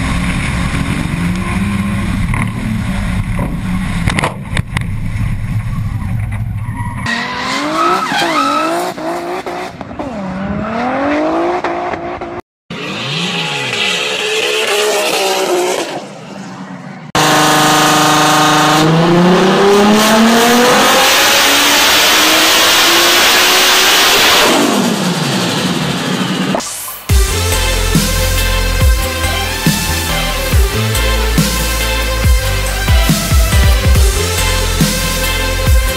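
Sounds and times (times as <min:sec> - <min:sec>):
car engine revving: 0:00.0 - 0:35.9
turbo rush: 0:17.2 - 0:35.9.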